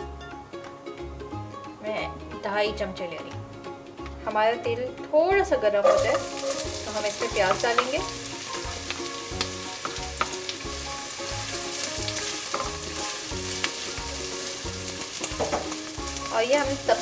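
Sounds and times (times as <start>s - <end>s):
onions sizzling in oil: 5.8s - 17.0s
spatula stirring in pot: 5.9s - 7.9s.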